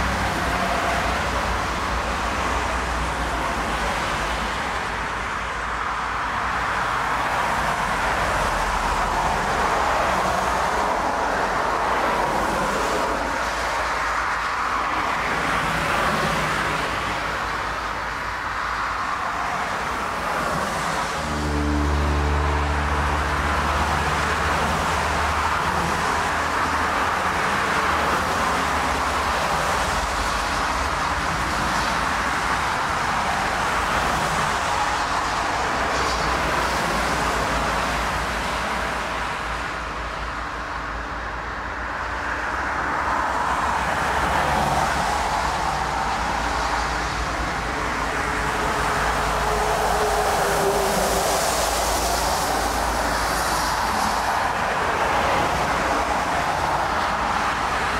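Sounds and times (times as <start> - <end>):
jet airliner roar: 43.7 - 57.9.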